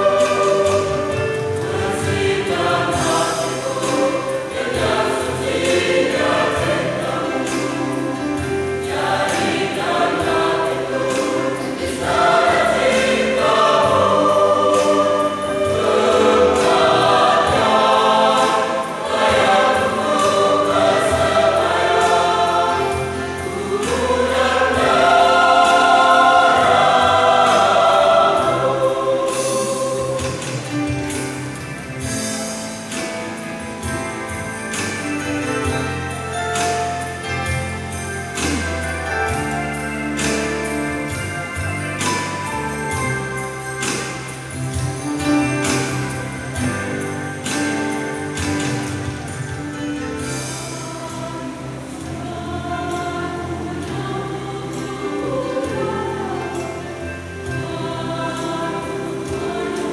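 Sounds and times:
choir singing: 0.0 - 59.9.

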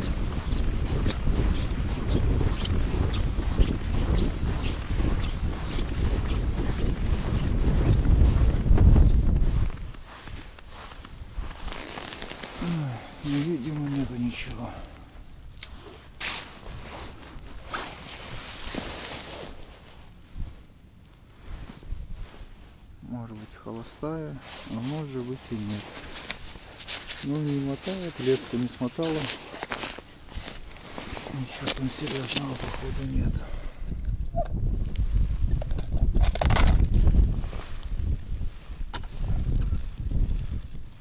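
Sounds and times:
wind buffeting microphone: 0.0 - 11.8, 30.3 - 41.0
boots crunching through snow: 0.0 - 14.8, 15.8 - 20.0, 24.1 - 33.4
clothing rustling: 0.0 - 14.8, 15.7 - 33.2.

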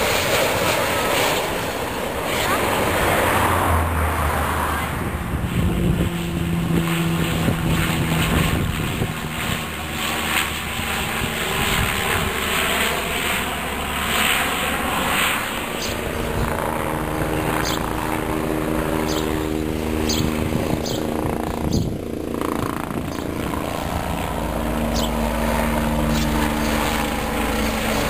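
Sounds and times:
propeller plane engines droning: 0.0 - 28.0
wind buffeting microphone: 4.8 - 12.9, 15.8 - 28.0.

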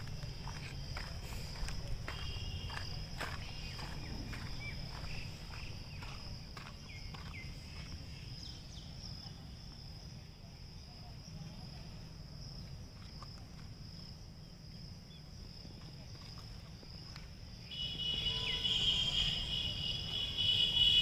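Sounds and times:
footsteps crunching on ballast: 0.0 - 8.4
insects droning: 0.0 - 21.0.

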